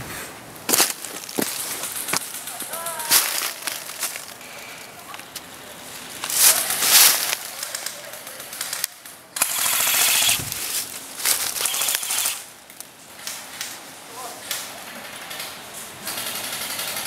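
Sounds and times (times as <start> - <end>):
rapid airsoft gun burst: 9.4 - 10.5, 11.6 - 12.4.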